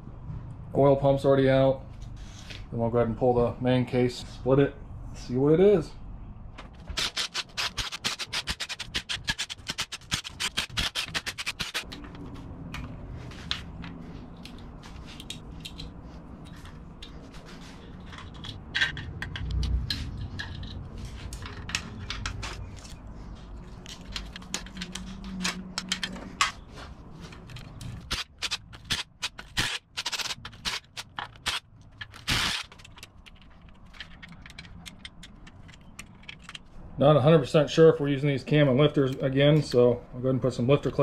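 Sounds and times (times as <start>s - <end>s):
metal tools clicking and scraping: 7.0s - 23.0s, 23.7s - 26.6s, 27.2s - 36.7s.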